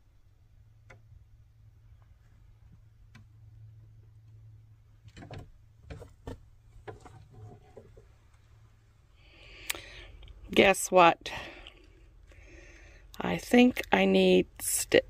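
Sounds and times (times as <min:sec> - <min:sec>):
van interior low hum: 0:00.0 - 0:15.0
small knocks and clicks: 0:00.8 - 0:01.2, 0:02.0 - 0:08.4.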